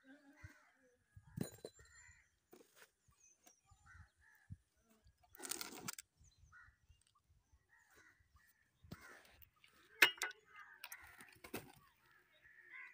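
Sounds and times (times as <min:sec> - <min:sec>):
crows cawing: 0:07.7 - 0:09.5, 0:10.4 - 0:11.4, 0:12.0 - 0:12.9.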